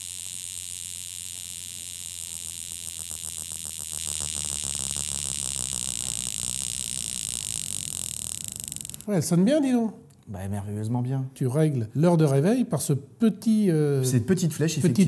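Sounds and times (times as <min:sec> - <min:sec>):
wristwatch alarm buzzing rattle: 0:00.0 - 0:09.1.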